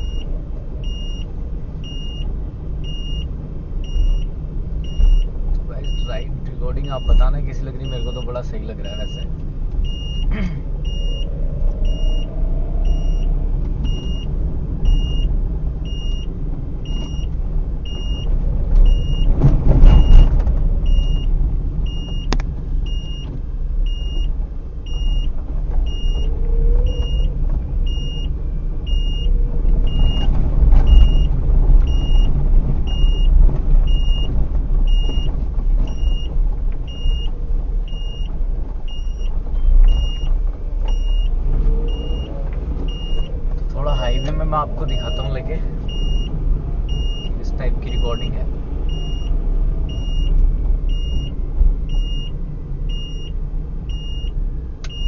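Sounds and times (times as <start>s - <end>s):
car road and engine rumble: 0.0s - 55.0s
passing traffic: 0.0s - 55.0s.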